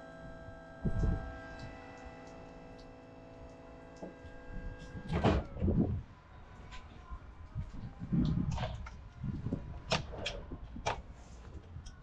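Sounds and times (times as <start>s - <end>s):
machine hum: 0.0s - 8.5s.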